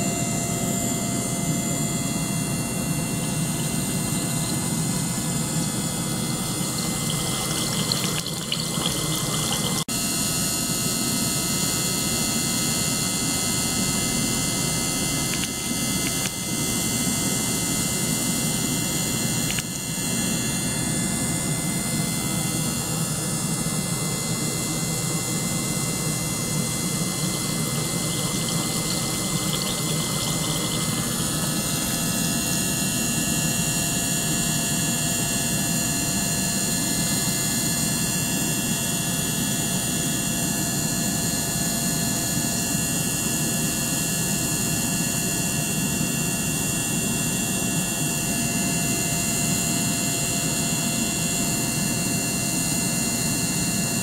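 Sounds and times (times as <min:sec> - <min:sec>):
water pump running: 0:02.5 - 0:09.9, 0:24.6 - 0:34.4
water streaming and bubbling: 0:06.1 - 0:09.9, 0:26.3 - 0:32.8.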